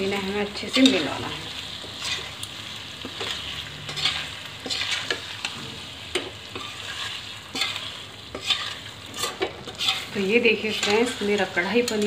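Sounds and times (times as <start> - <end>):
low sizzle: 0.0 - 12.0
spatula scraping a steel pan: 3.1 - 5.8, 6.5 - 12.0.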